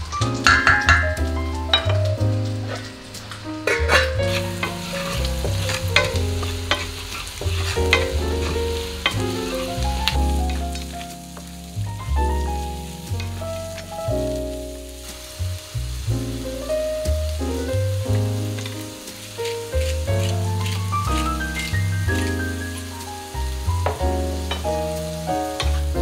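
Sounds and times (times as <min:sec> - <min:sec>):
food sizzling in a frying pan: 0:00.0 - 0:26.0
soft music: 0:00.0 - 0:26.0
wooden spatula scraping a pan: 0:02.6 - 0:11.5, 0:18.4 - 0:26.0.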